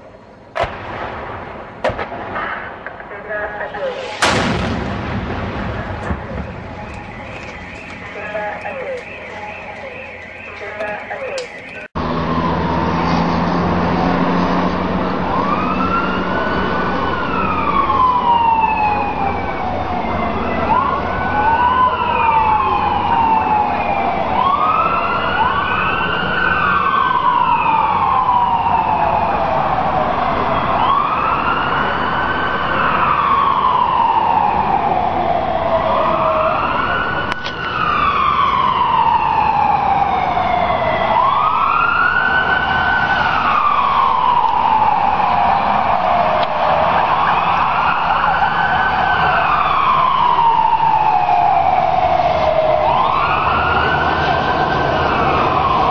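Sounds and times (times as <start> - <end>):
emergency sirens wailing: 2.3 - 55.9.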